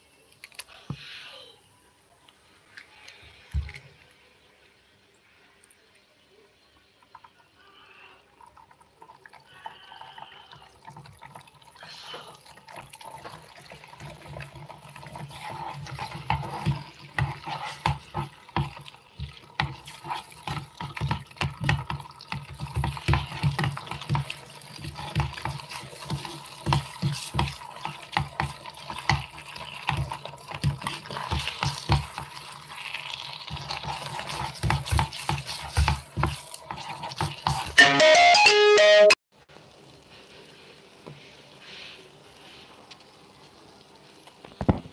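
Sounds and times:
egg and onions sizzling: 0:06.6 - 0:44.9
steel spoon scraping a pot: 0:15.0 - 0:18.3.

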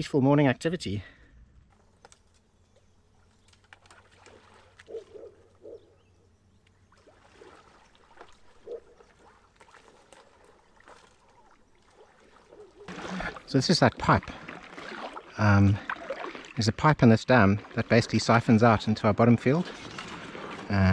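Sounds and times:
kayak paddle splashing: 0:03.4 - 0:05.4, 0:06.8 - 0:20.9
water dripping: 0:06.6 - 0:20.9.

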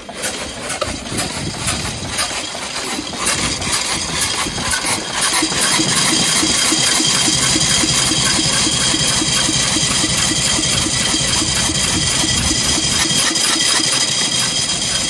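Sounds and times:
single-cylinder engine idling: 0:00.0 - 0:15.0.

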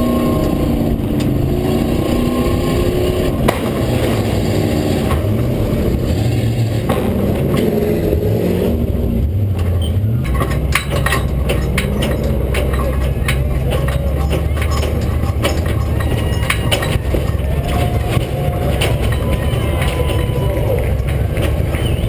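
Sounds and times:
truck engine revving and running: 0:00.0 - 0:22.0
sharp clicks and knocks: 0:00.4 - 0:01.4, 0:05.0 - 0:05.4, 0:06.7 - 0:08.7, 0:09.3 - 0:22.0.

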